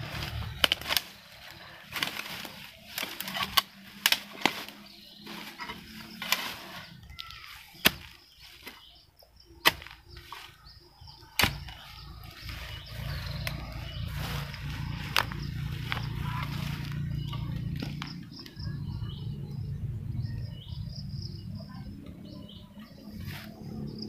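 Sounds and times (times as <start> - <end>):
digging tool chopping into soil: 0.0 - 1.2, 1.8 - 8.9, 9.6 - 10.6, 11.2 - 13.5.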